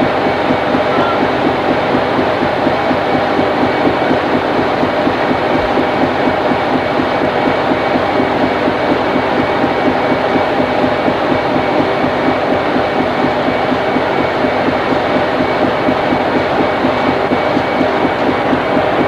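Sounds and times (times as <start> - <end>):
ship engine throbbing: 0.0 - 19.0.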